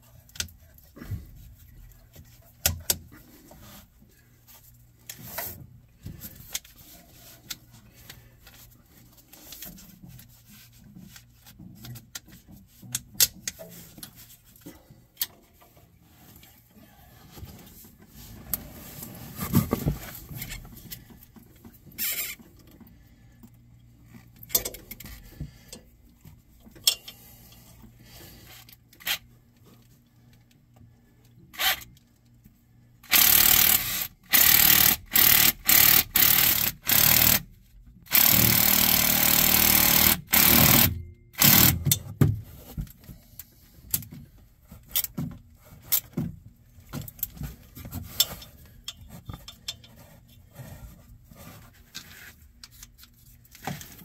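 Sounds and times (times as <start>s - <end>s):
power tool bursts: 33.1s - 37.4s, 38.1s - 41.8s.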